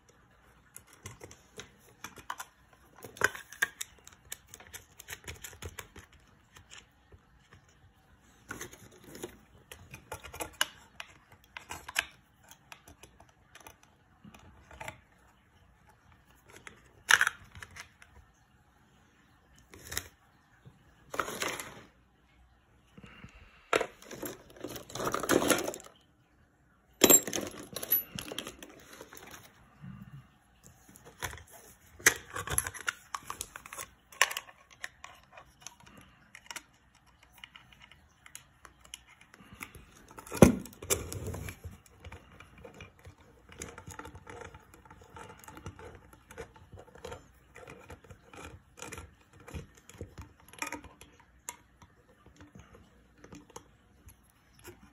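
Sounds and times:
metal clicks and rattles: 0:27.0 - 0:29.5.

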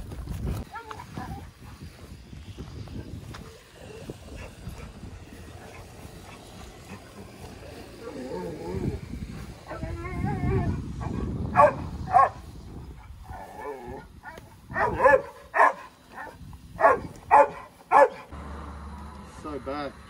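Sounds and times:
dog barking: 0:11.6 - 0:12.4, 0:14.2 - 0:18.3.

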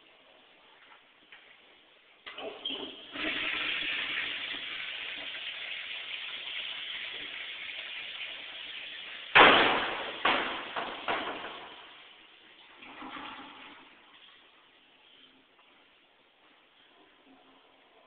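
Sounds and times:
toilet flushing: 0:02.3 - 0:14.4
pipe bang: 0:09.3 - 0:12.0.

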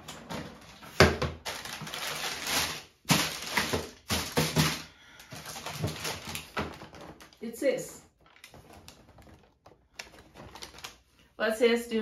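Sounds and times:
tissue paper crinkling: 0:01.4 - 0:07.0, 0:08.2 - 0:11.2.

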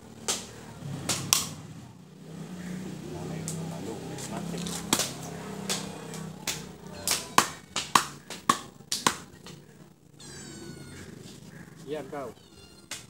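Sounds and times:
machete chopping meat and bone: 0:00.2 - 0:01.6, 0:04.6 - 0:09.6
high-pitched falling call: 0:10.2 - 0:11.2.

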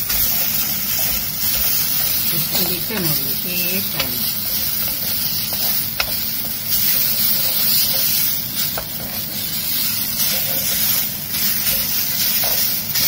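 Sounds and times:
leaves sizzling in a pan: 0:00.0 - 0:13.0
spatula knocking on pan: 0:03.9 - 0:06.6.

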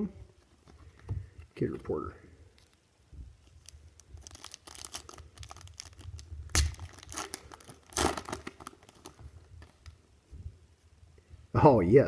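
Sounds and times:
wrapper tearing and crinkling: 0:03.5 - 0:09.9.

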